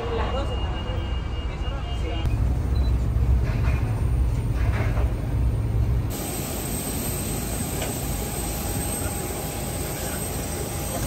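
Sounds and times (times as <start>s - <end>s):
bus engine rumble: 0.0s - 11.0s.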